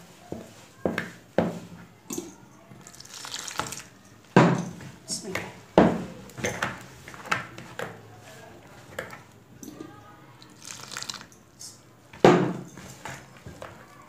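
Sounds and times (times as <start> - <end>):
hand mixing flour rustling: 2.8 - 9.5, 10.4 - 11.9, 12.5 - 14.0.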